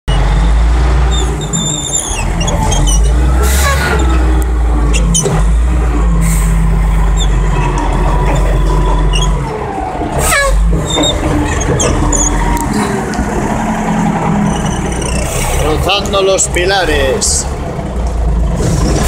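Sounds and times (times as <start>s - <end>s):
diesel engine droning: 0.1s - 19.0s
faint machine squeaks: 1.1s - 4.2s, 7.1s - 9.5s.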